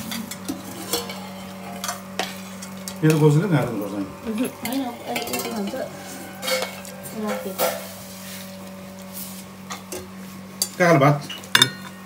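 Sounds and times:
spoons clinking on steel bowls: 0.0s - 8.1s, 9.6s - 12.0s
steady hum: 0.0s - 12.0s.

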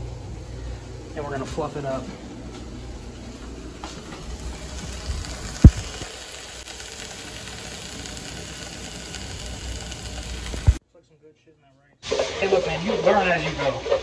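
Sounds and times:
food sizzling in hot oil: 4.0s - 10.8s.

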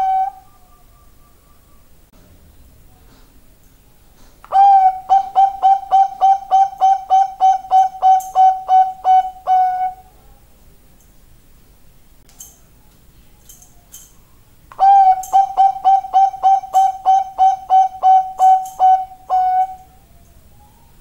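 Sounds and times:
dove cooing: 0.0s - 1.9s, 4.5s - 10.4s, 14.7s - 21.0s.

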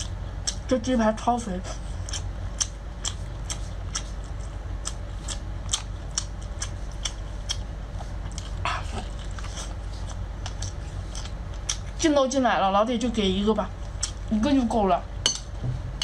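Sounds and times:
person chewing with wet mouth clicks: 0.0s - 0.6s, 2.0s - 7.7s, 8.3s - 11.9s.

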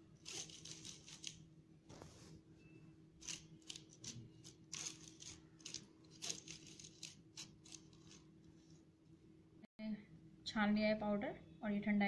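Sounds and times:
spoon scraping through sieve: 3.2s - 8.3s.

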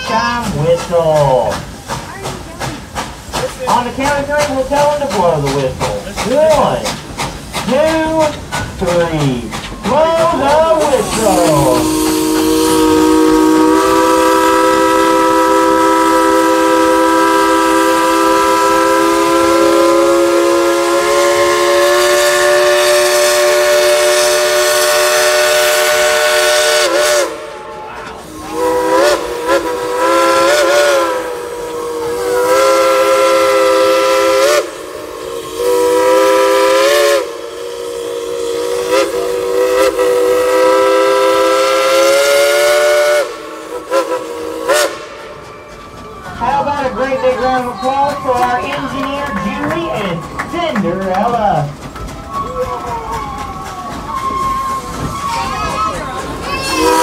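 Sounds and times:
steam whistle chord: 11.4s - 27.6s, 28.5s - 45.4s.

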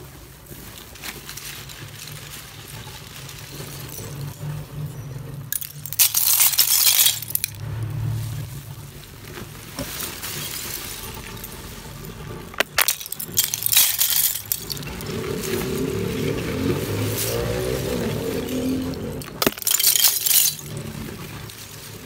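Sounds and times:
clay shards clinking and crackling: 5.5s - 7.6s, 9.7s - 21.0s.

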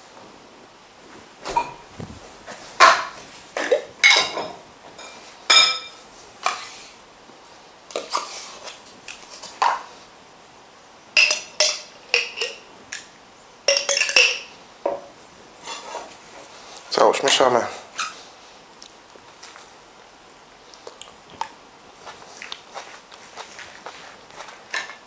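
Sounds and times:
metal spoon clinking on glass bowl: 11.2s - 12.6s, 13.7s - 14.5s.

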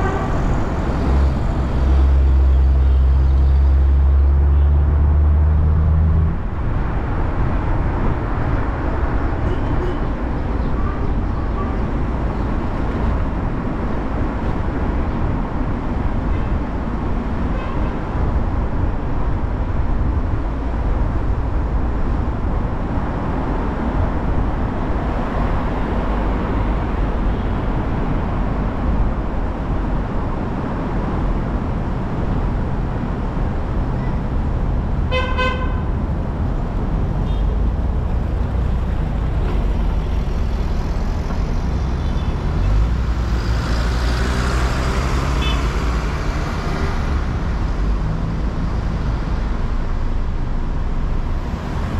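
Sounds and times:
engine and tyre rumble: 0.0s - 51.9s
car horn toot: 35.1s - 35.8s.

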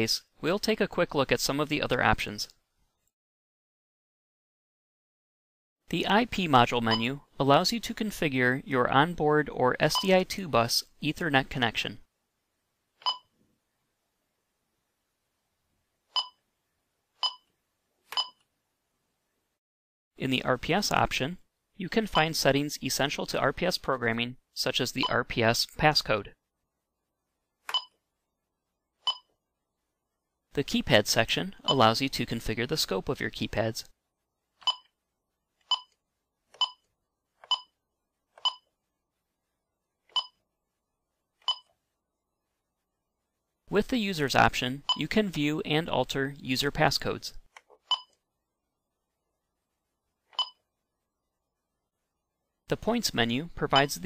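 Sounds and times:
keypad key-press beeps: 13.0s - 13.2s, 17.2s - 17.4s, 18.2s - 18.4s, 27.7s - 27.9s, 29.1s - 29.3s, 34.6s - 34.9s, 35.7s - 35.9s, 36.6s - 36.8s, 38.4s - 38.6s, 40.2s - 40.4s, 41.5s - 41.7s, 47.9s - 48.1s, 50.4s - 50.6s.

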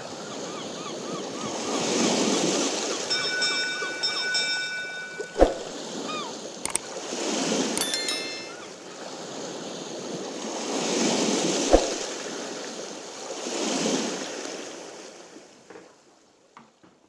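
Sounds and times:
ocean waves washing in: 10.3s - 14.8s.

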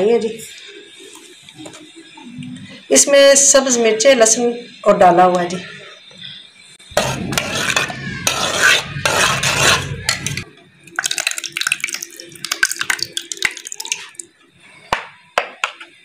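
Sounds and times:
spoon stirring in a bowl: 7.0s - 14.2s.

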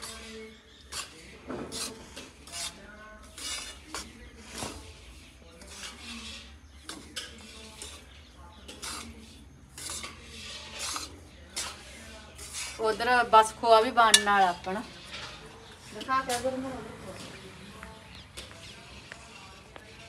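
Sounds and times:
spatula scraping in a wok: 0.0s - 20.0s.

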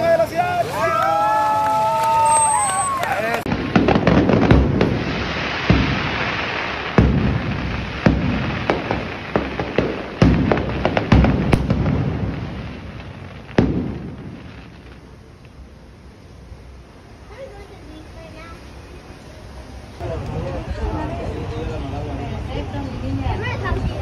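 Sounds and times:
fireworks crackling: 0.0s - 24.0s
firework booms: 2.0s - 15.8s.

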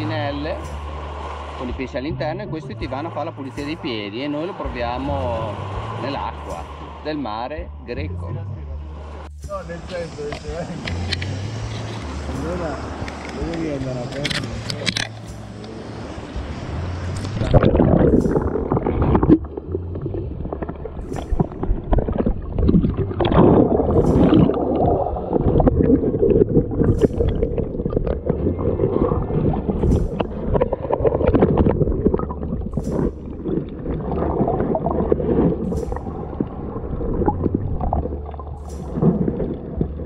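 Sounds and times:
muffled underwater sloshing: 10.4s - 40.0s.

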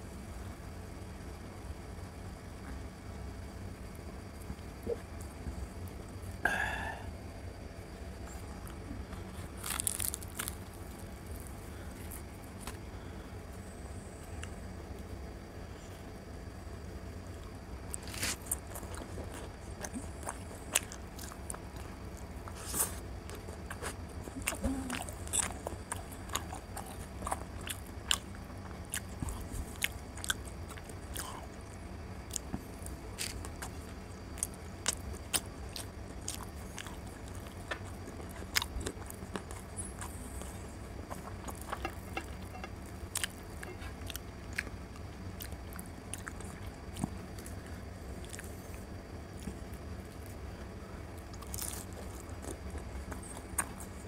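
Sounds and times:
steady low hum: 0.0s - 54.0s
person chewing wet food: 8.2s - 14.6s, 17.4s - 54.0s.

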